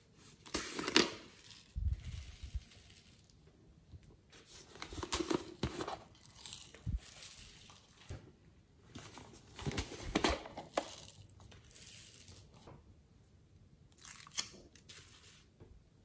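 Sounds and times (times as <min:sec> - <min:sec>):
foam beads rustling and pouring: 0:01.2 - 0:03.4, 0:05.7 - 0:08.1, 0:10.7 - 0:12.6.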